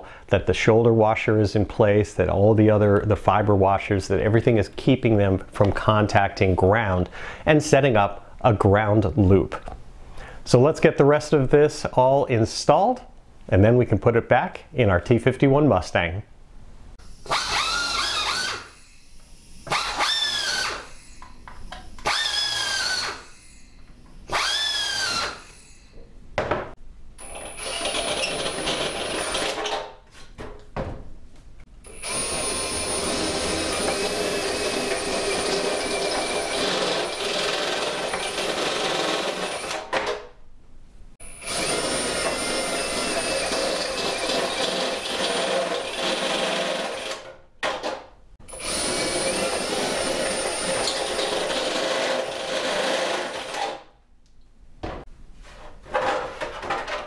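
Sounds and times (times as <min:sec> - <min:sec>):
cordless drill high whine: 0:17.0 - 0:26.0, 0:27.2 - 0:29.5, 0:31.8 - 0:38.4, 0:41.2 - 0:47.1, 0:48.5 - 0:53.6
power drill boring metal: 0:17.1 - 0:21.4, 0:22.0 - 0:26.0, 0:27.2 - 0:29.7, 0:31.9 - 0:39.8, 0:41.2 - 0:47.3, 0:48.5 - 0:53.8.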